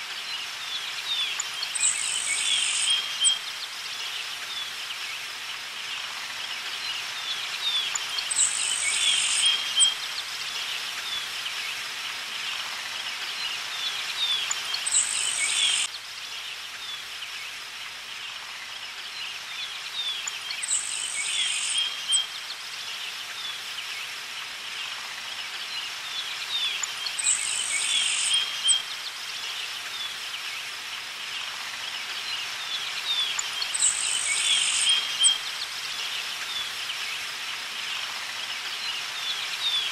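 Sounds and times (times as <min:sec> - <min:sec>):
birds chirping: 0:13.9 - 0:15.9.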